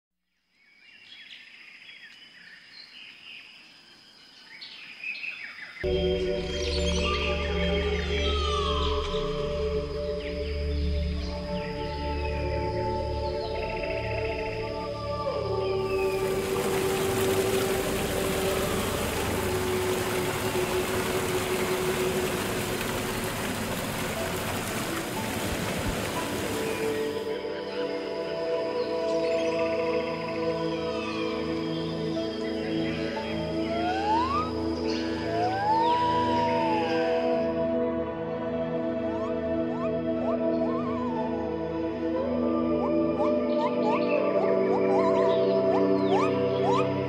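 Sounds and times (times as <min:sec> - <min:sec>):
waterfall rushing: 0:15.9 - 0:27.3
birds chirping and whistling: 0:39.1 - 0:41.6, 0:42.5 - 0:47.0.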